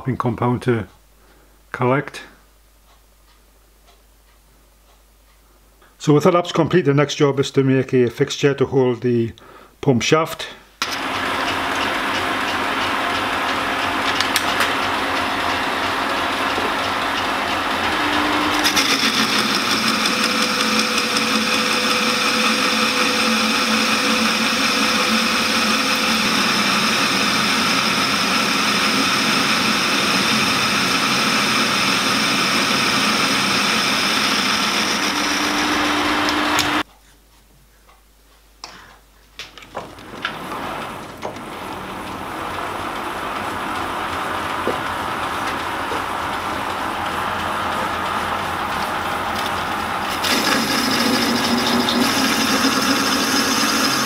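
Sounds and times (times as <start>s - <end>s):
metal lathe running: 10.8s - 36.8s, 39.8s - 54.0s.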